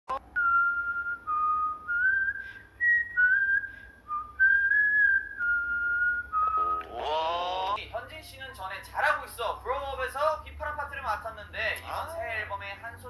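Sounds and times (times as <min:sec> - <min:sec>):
person whistling a tune: 0:00.3 - 0:06.9.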